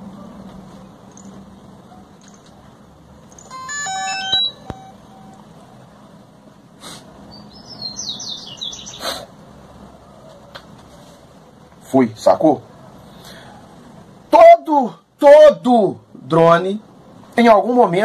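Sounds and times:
high falling chirps: 0:03.4 - 0:05.4
drone startup beep tune: 0:03.5 - 0:05.4.

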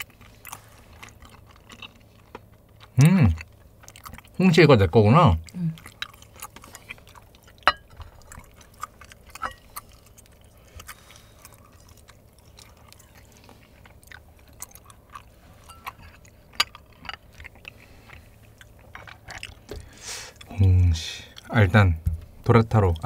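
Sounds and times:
chopsticks clinking on bowls: 0:07.6 - 0:08.0.

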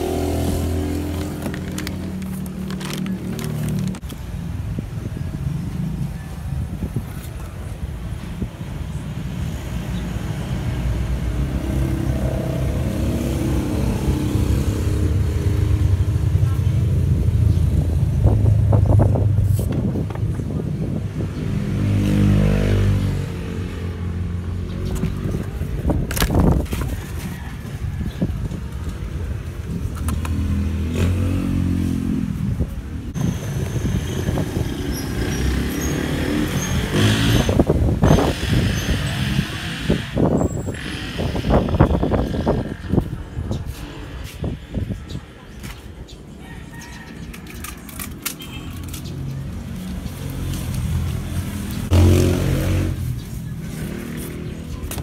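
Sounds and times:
vehicle engine running: 0:00.0 - 0:04.0.

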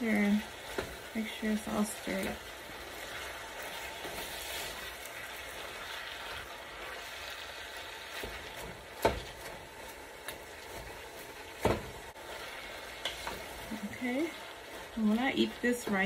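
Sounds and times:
meat and onions sizzling in a pot: 0:00.0 - 0:16.0
wooden spoon stirring: 0:08.0 - 0:16.0.

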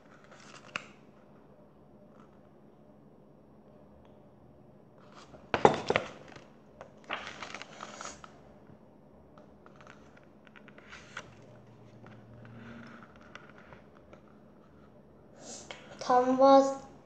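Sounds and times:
pages rustling: 0:00.0 - 0:01.1, 0:05.0 - 0:08.4, 0:09.6 - 0:14.9.

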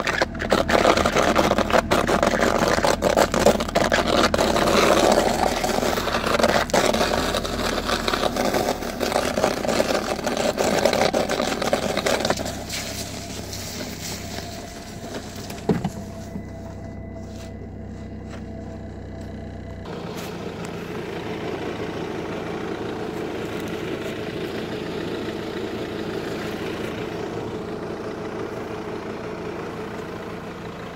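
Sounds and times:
steady low hum: 0:00.0 - 0:30.9.

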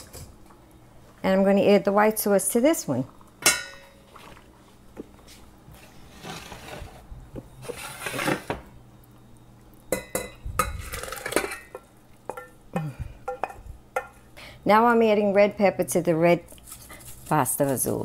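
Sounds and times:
steel pots clinking and knocking: 0:03.4 - 0:04.0, 0:09.9 - 0:14.2.

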